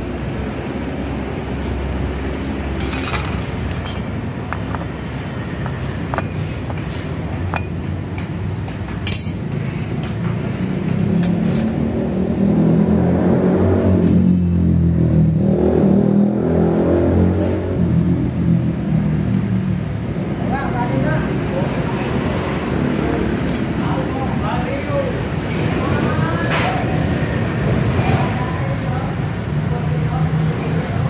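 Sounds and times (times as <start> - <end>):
metal clinks and clanks: 0.4 - 10.2, 10.9 - 11.9, 23.0 - 23.8.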